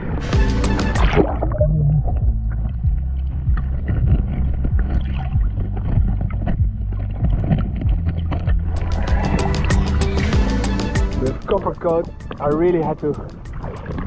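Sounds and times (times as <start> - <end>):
muffled underwater rumble: 0.0 - 10.4.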